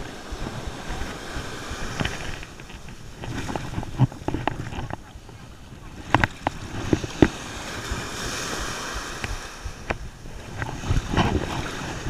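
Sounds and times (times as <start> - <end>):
ocean surf washing and breaking: 0.0 - 12.0.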